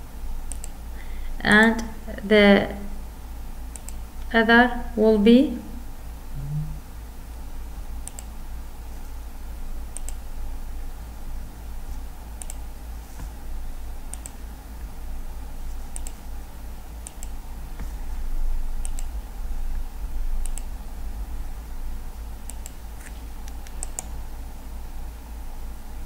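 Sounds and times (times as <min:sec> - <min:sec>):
steady low hum: 0:00.0 - 0:26.0
computer mouse clicking: 0:00.4 - 0:00.8, 0:03.7 - 0:04.0, 0:08.0 - 0:08.3, 0:09.9 - 0:10.2, 0:12.4 - 0:13.4, 0:14.1 - 0:14.4, 0:15.9 - 0:16.2, 0:17.0 - 0:17.4, 0:18.8 - 0:19.2, 0:20.4 - 0:20.7, 0:22.4 - 0:24.2.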